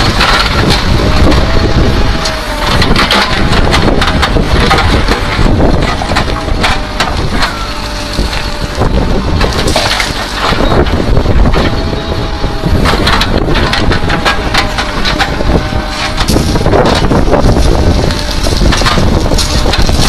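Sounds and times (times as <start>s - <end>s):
bucket scraping through rock: 0.0s - 20.0s
diesel engine running under load: 0.0s - 20.0s.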